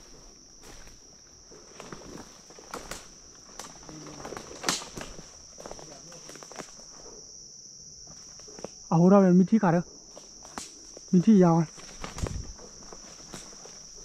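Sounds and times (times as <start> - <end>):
insects trilling: 0.0 - 14.0
footsteps in leaf litter: 11.7 - 14.0.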